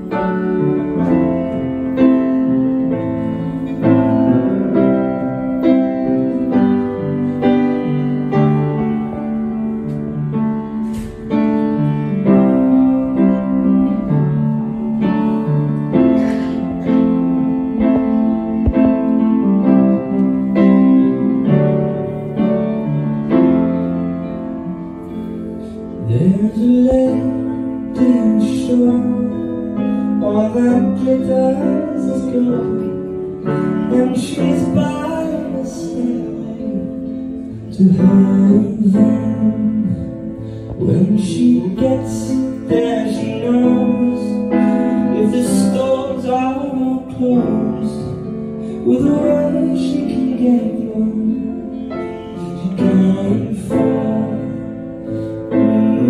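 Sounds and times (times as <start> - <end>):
person singing lead vocal: 25.1 - 56.0.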